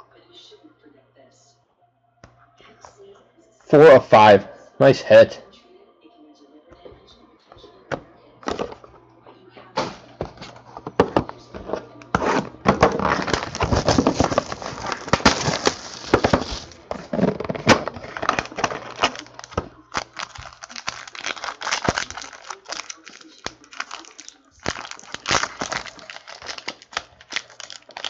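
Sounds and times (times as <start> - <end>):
plastic wrapping crinkling and tearing: 10.3 - 28.0.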